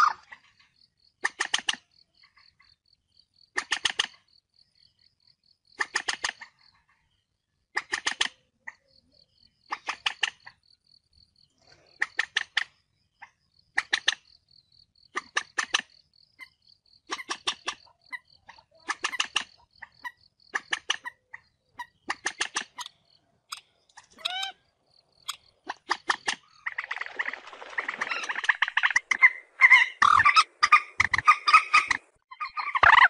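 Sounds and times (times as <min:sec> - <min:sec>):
moorhen harsh clicking calls: 0:15.1 - 0:24.6, 0:25.2 - 0:33.0
moorhen sweeping call: 0:24.2 - 0:24.6.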